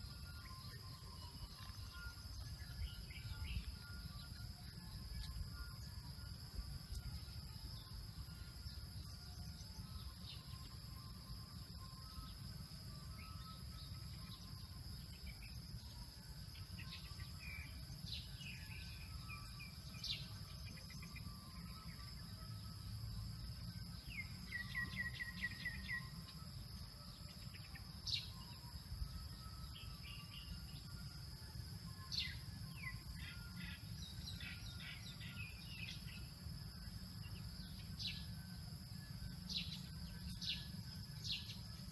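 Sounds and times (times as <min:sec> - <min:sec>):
insect drone: 0:00.0 - 0:41.9
bird trill: 0:23.9 - 0:41.9.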